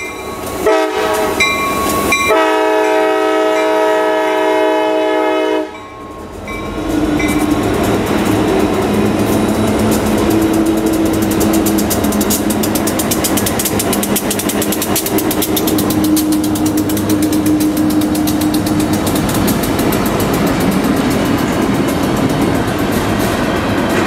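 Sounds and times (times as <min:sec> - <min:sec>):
diesel locomotive engine hum: 0:00.0 - 0:24.0
steel wheels rumbling on rails: 0:00.0 - 0:24.0.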